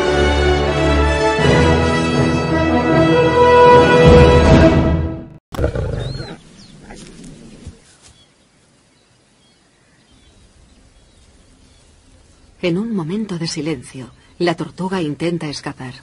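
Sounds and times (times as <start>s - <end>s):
lion growling: 5.6s - 7.8s
faint grassland background: 5.6s - 16.0s.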